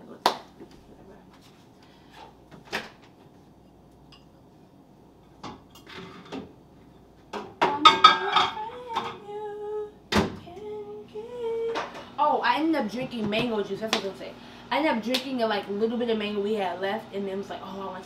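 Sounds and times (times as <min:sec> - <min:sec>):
dishes and utensils clattering: 0:05.3 - 0:06.5, 0:07.4 - 0:09.2
person humming: 0:07.7 - 0:12.0.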